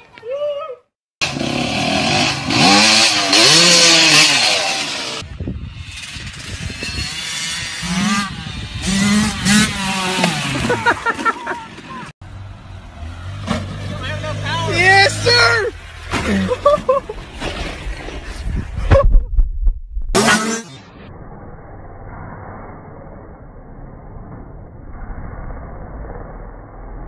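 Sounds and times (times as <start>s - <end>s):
dirt bike engine revving: 1.2s - 12.1s, 20.1s - 20.9s.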